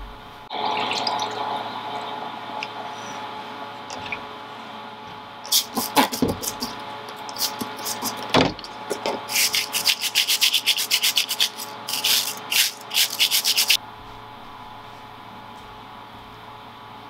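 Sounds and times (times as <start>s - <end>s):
faint steady hum: 0.0s - 17.0s
spray bottle squirting: 5.5s - 8.3s, 9.3s - 13.8s
wire brush scrubbing metal: 5.5s - 13.8s.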